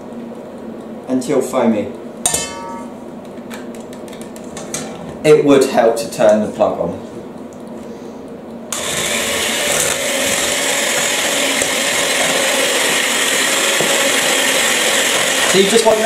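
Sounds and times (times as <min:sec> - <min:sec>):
electric hand mixer whisking: 0:08.7 - 0:16.0.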